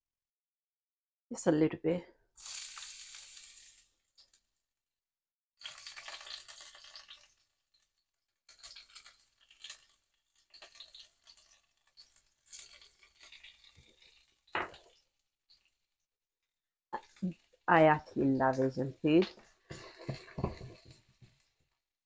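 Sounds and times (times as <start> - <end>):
vegetables sizzling in hot oil: 2.4 - 4.4, 5.6 - 15.7, 17.0 - 21.4.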